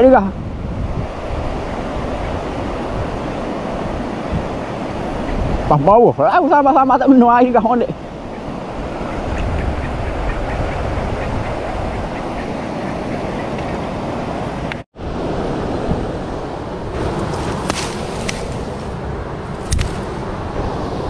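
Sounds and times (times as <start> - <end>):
wind buffeting microphone: 0.0 - 21.0
river flowing: 12.2 - 21.0.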